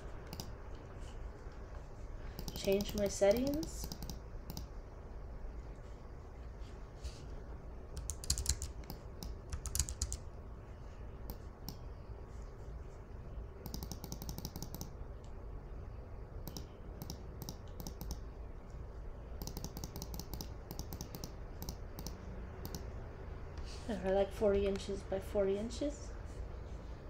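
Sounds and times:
typing on computer keyboard: 0:00.2 - 0:00.6, 0:02.4 - 0:04.7, 0:08.0 - 0:10.2, 0:13.6 - 0:15.0, 0:16.4 - 0:18.2, 0:19.4 - 0:22.9.

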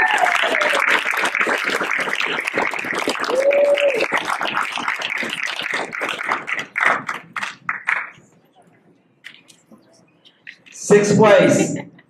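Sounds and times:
audience clapping: 0:00.0 - 0:08.3.

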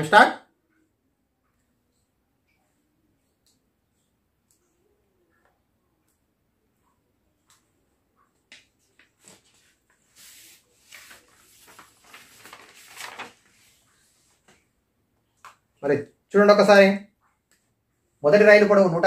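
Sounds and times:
faint scratchy rubbing: 0:09.2 - 0:14.6.

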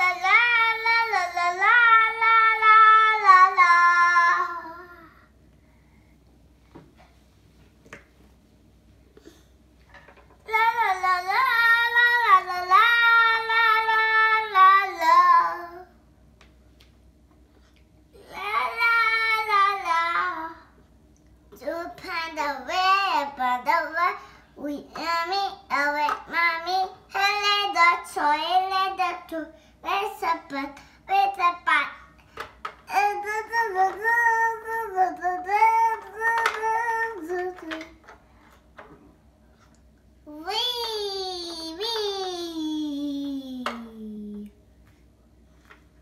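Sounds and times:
young child singing: 0:00.0 - 0:05.2, 0:10.5 - 0:15.9, 0:18.2 - 0:20.7, 0:21.6 - 0:32.1, 0:32.9 - 0:38.0.

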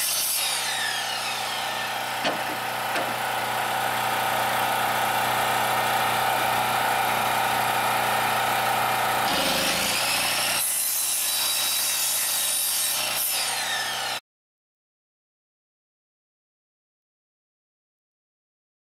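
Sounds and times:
electric miter saw cutting wood: 0:00.0 - 0:14.2.

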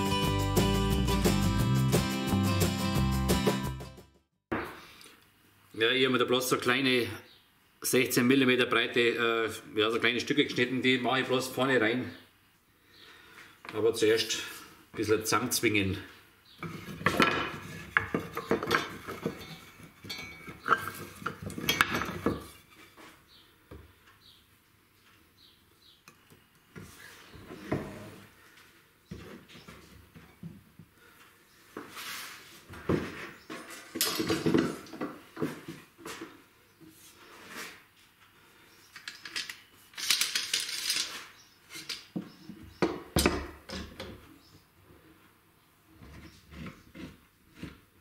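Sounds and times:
metal clamps clinking: 0:18.6 - 0:22.3, 0:34.0 - 0:34.7.

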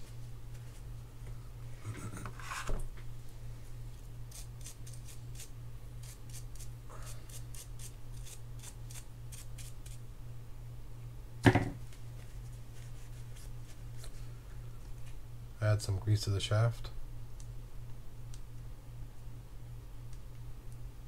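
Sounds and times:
small brush scrubbing: 0:04.3 - 0:10.0, 0:12.2 - 0:14.1
loud knock: 0:11.4 - 0:11.8.

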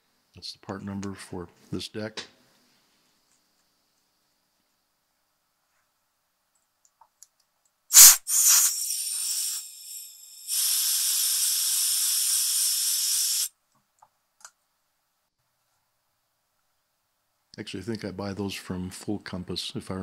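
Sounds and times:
aerosol can spraying: 0:07.9 - 0:13.5.

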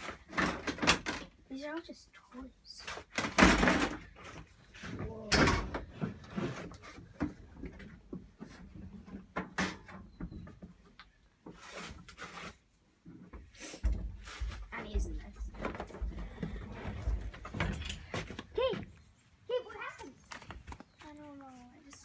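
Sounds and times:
toys and plastic tub rattling: 0:00.0 - 0:01.6, 0:02.7 - 0:09.8.

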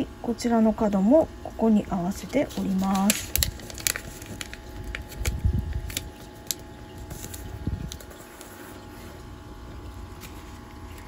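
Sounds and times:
paper crinkling while folded: 0:02.2 - 0:11.0.

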